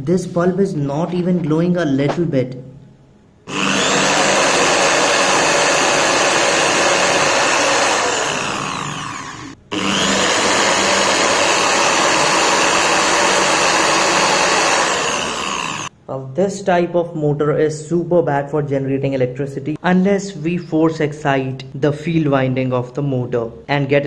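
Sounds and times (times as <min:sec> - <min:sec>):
angle grinder whine: 0:03.5 - 0:15.9.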